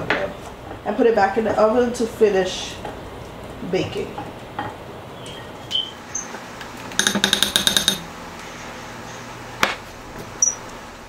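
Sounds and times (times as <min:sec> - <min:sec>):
rapid ringing taps: 0:07.0 - 0:08.1.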